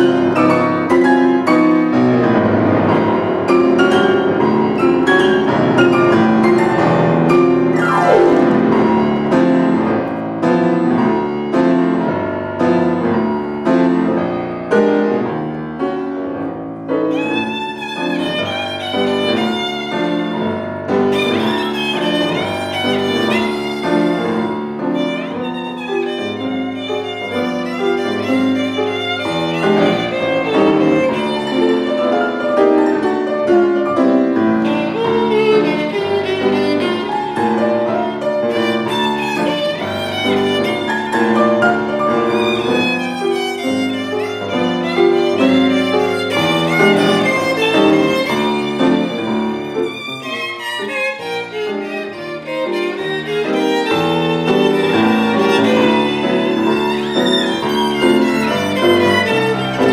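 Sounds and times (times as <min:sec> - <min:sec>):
violin vibrato melody: 0:00.0 - 0:14.3, 0:16.9 - 0:59.9
piano chords: 0:00.0 - 0:59.9.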